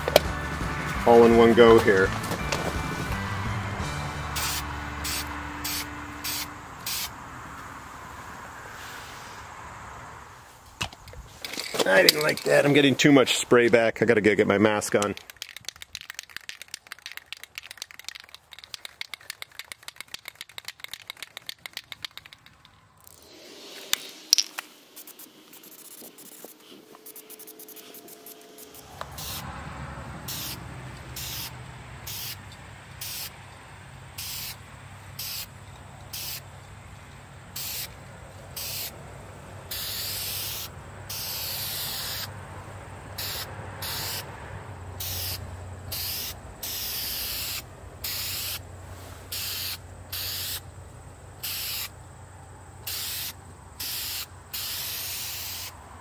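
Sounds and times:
aerosol spray can hissing: 4.4s - 7.1s, 23.2s - 29.5s, 30.3s - 32.4s, 33.0s - 33.3s, 34.2s - 34.6s, 35.2s - 35.5s, 36.1s - 36.5s, 37.6s - 38.0s, 38.6s - 38.9s, 39.7s - 42.3s, 43.2s - 44.3s, 45.0s - 48.6s, 49.3s - 50.6s, 51.4s - 51.9s, 52.8s - 55.8s
rapid clicking rattle: 15.0s - 22.8s.

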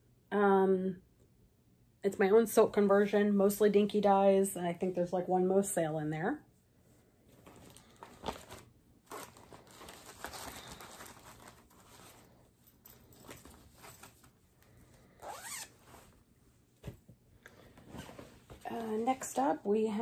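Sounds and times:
plastic and fabric bags rustling: 7.3s - 17.0s
zipper pulled: 15.1s - 16.2s.

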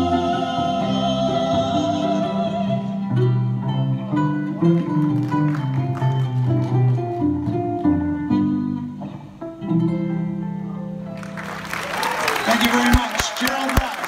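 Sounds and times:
woman singing: 0.0s - 3.2s
upright bass: 0.0s - 11.4s
ukulele: 0.0s - 13.0s
lap steel guitar: 2.4s - 11.4s.

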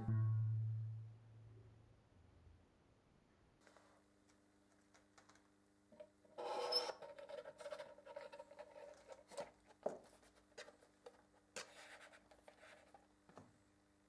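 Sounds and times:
scrape: 11.6s - 13.0s.

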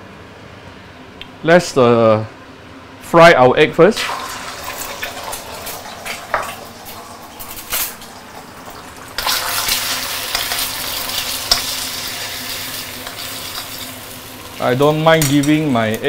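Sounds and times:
eggs sizzling in oil: 4.0s - 16.0s.

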